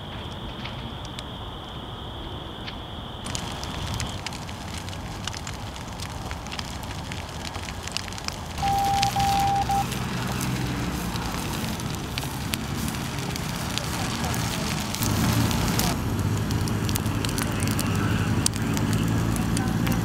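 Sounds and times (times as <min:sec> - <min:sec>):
dry grass burning with crackles: 0:00.0 - 0:02.0, 0:02.7 - 0:20.0
electronic tone: 0:08.6 - 0:09.9.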